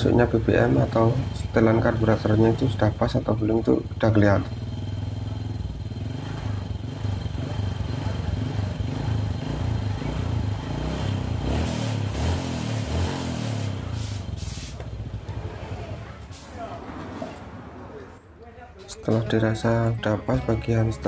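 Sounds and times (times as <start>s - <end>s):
motorcycle engine idling: 0.0s - 11.6s, 13.7s - 16.5s
short hissy rushes: 13.3s - 14.9s.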